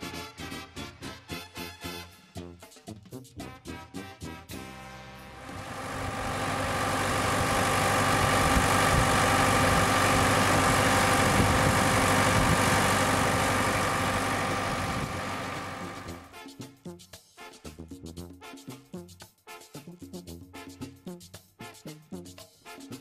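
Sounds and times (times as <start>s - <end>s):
tractor diesel engine running: 5.4s - 16.3s.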